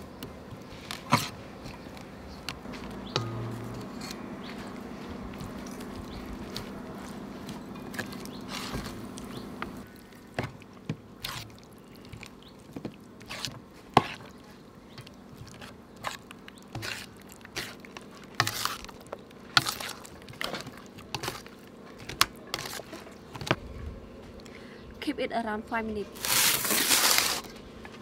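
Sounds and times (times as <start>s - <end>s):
wet batter squelches: 4.5s - 23.5s.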